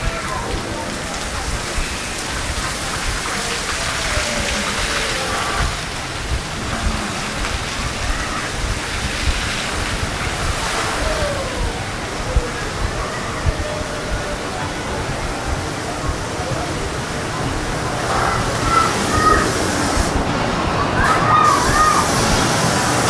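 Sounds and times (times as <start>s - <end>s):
hiss of falling water: 0.0s - 20.3s, 21.0s - 23.0s.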